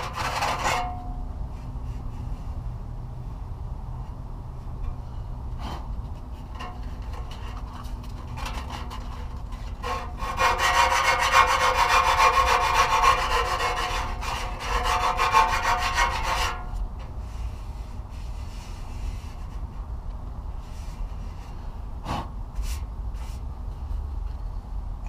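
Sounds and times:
hand file scraping metal: 0:00.0 - 0:01.0, 0:05.6 - 0:16.8.

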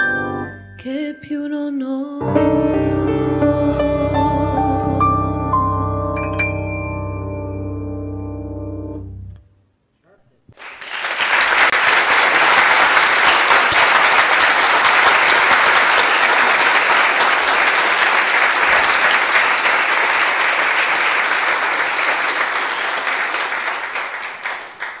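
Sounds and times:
audience applauding: 0:10.6 - 0:25.0.

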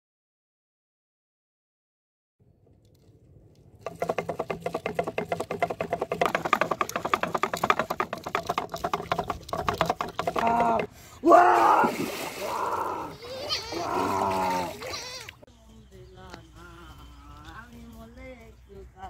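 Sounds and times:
fishing-line spool rattling: 0:02.7 - 0:10.6.

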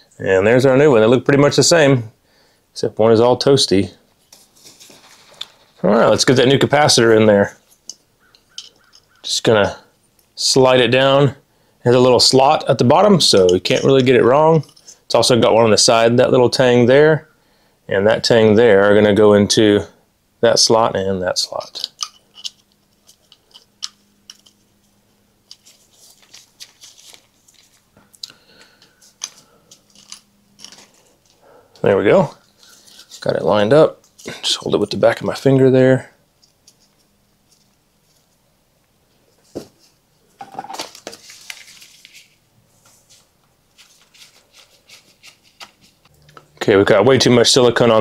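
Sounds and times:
gloved hands clicking and rustling: 0:07.7 - 0:09.3, 0:21.5 - 0:31.8, 0:36.4 - 0:38.3, 0:43.4 - 0:46.5.

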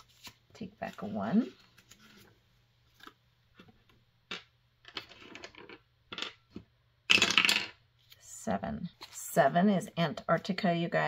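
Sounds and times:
dice clattering onto tabletop: 0:07.1 - 0:07.8.

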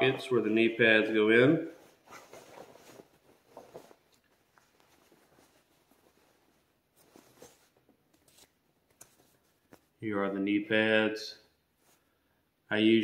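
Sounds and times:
fabric rustling: 0:01.7 - 0:10.0.

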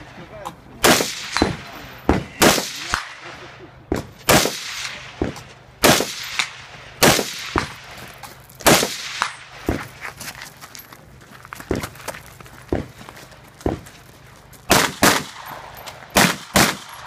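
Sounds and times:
loud rifle shots: 0:00.8 - 0:07.9, 0:08.6 - 0:09.6, 0:14.7 - 0:17.0
quieter gunshot cracks: 0:14.7 - 0:17.0.

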